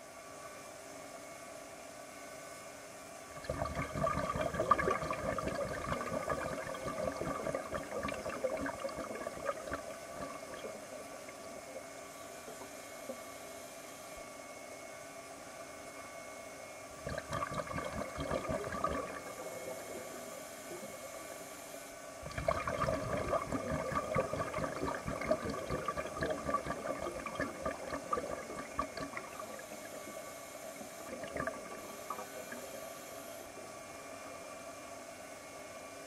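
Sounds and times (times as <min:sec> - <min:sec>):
faint steady hum: 0:00.0 - 0:36.0
exhaled bubbles gurgling underwater: 0:03.4 - 0:13.2, 0:17.0 - 0:21.2, 0:22.2 - 0:33.0.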